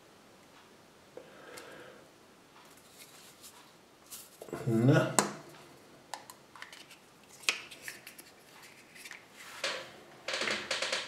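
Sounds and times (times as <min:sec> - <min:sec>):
plastic capsule clicks and rustles: 0:06.1 - 0:09.2.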